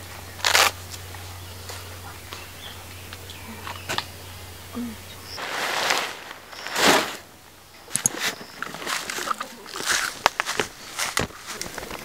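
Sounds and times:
fabric rustling and swishing: 5.4 - 7.4
camp chair clicks: 7.9 - 12.0.

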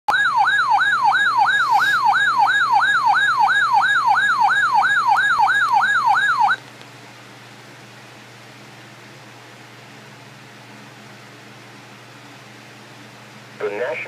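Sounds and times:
siren-style alert tone: 0.1 - 6.6
radio hiss and hum: 13.6 - 14.0.

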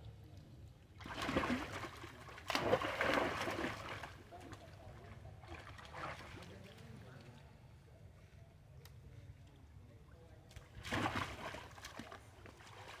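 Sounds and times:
pool water splashing: 1.0 - 7.4, 10.7 - 13.0.

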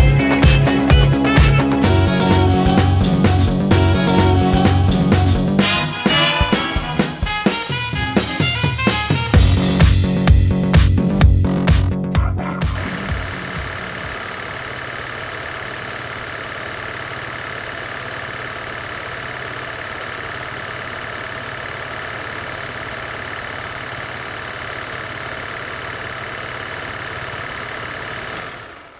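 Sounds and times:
film projector clattering: 0.0 - 3.0, 12.8 - 28.9.

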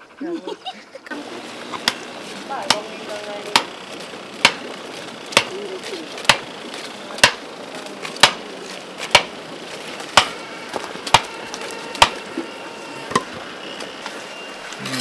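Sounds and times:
sharp knocks on stake: 4.4 - 4.7, 5.3 - 5.6, 6.2 - 6.5, 7.2 - 7.5, 8.2 - 8.4, 9.0 - 9.4, 10.1 - 10.4, 11.1 - 11.3.

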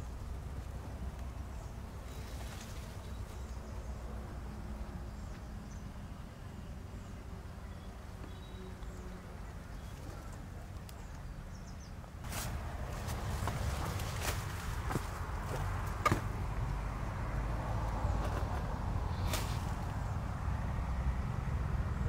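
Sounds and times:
faint bird chirps: 5.1 - 12.0.

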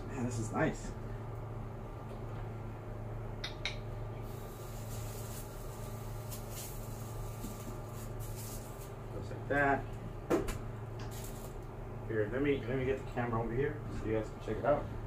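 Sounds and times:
low room hum: 0.0 - 15.0
styrofoam scraping and rustling: 4.7 - 8.9.

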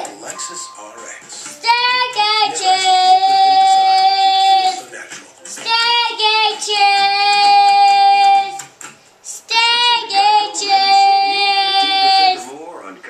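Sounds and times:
boy singing loudly: 1.6 - 4.8, 5.6 - 8.6, 9.4 - 12.5.

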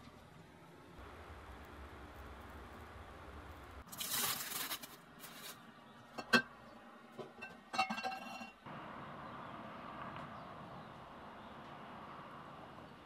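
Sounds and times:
plastic wrap crinkling: 3.8 - 5.6
metal file clinking: 7.7 - 8.6.

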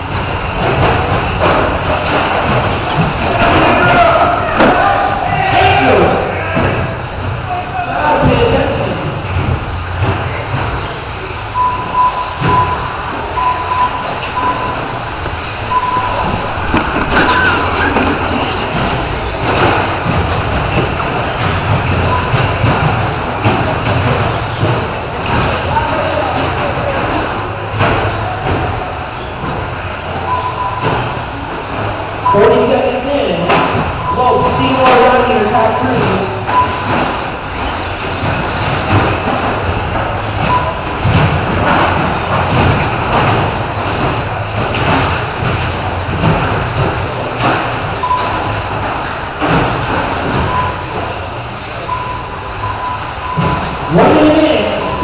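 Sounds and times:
rc trucks racing: 0.0 - 55.0
tyre noise: 0.0 - 55.0
low rumble: 14.3 - 22.2
short beep: 15.7 - 16.5, 36.5 - 36.9.

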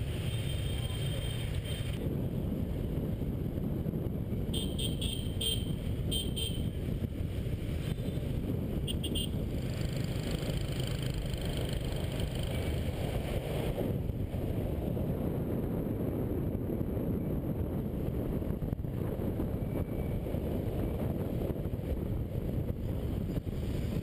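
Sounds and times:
motorbike and scooter engines rumbling: 0.0 - 24.0
wind on the camera: 0.0 - 24.0
short horn beeps: 4.6 - 6.6.

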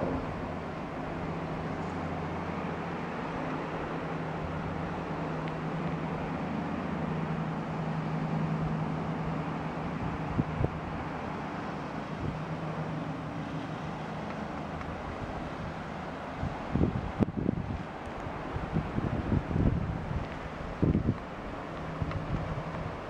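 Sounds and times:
wind noise: 9.9 - 11.1, 12.1 - 12.5, 14.8 - 23.0.

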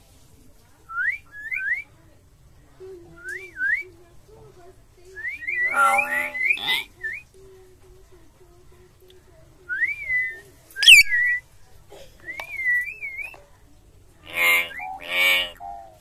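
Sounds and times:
myna bird whistling: 5.4 - 6.8, 10.8 - 11.4.

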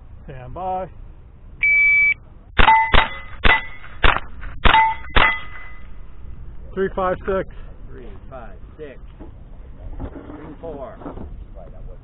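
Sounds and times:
shot timer beep: 1.6 - 4.0
rifle shots: 2.6 - 6.0
steel target ringing: 2.6 - 6.3.

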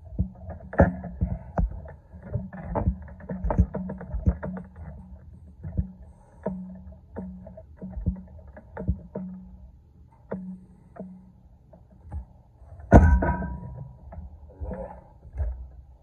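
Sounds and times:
training handle knocks and clunks: 0.1 - 9.6, 12.0 - 15.7
loud ringing metal clank: 12.9 - 14.1.

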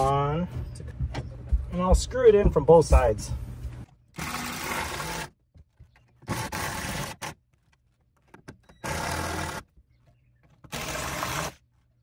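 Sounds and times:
power drill driving screws: 4.2 - 5.4, 6.2 - 7.4, 8.6 - 9.7, 10.6 - 11.6.

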